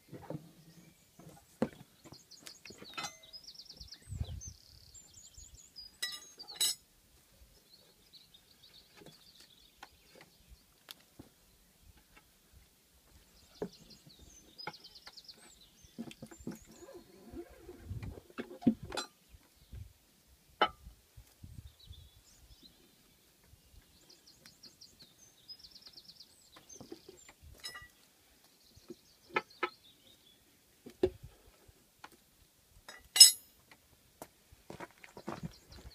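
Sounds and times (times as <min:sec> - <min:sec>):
birds chirping: 0:00.0 - 0:06.8, 0:07.4 - 0:18.0, 0:21.6 - 0:30.9, 0:35.1 - 0:35.9
tyre levers clinking on rim: 0:02.8 - 0:03.4, 0:32.9 - 0:33.5.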